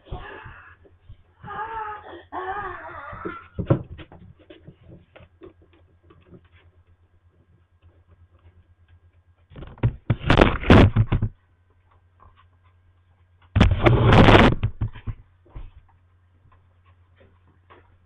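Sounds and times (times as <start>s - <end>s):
low electrical hum: 0.0s - 18.0s
webcam rustling and bumping: 9.4s - 11.4s, 13.4s - 15.3s.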